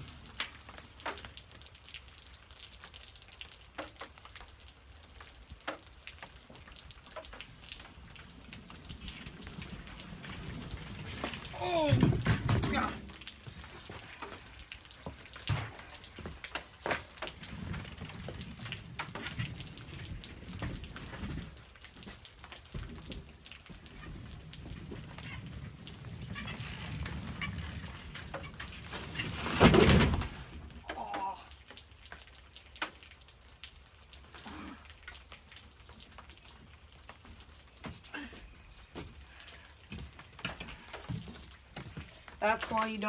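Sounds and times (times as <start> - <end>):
rain dripping and tapping: 0.0 - 43.0
bike crashing on wooden deck: 8.6 - 13.1, 23.9 - 30.9.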